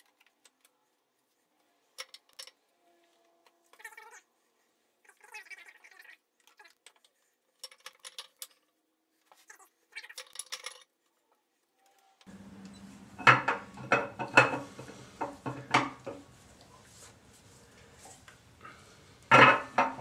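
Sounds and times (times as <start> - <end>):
metal knocks: 13.2 - 16.2.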